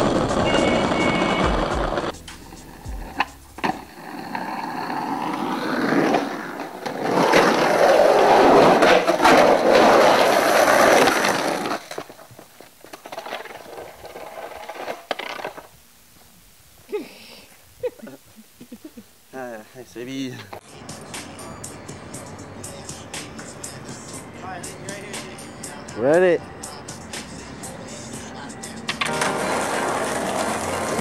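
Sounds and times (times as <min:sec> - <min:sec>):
skateboard wheels rolling on concrete: 0:00.0 - 0:19.0, 0:19.8 - 0:31.0
skateboard clacks: 0:28.8 - 0:31.0.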